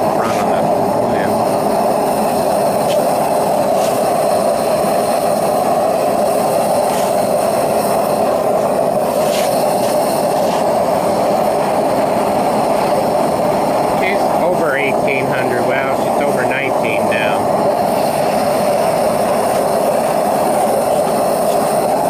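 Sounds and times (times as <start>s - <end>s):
roaring torch flame: 0.0s - 22.0s.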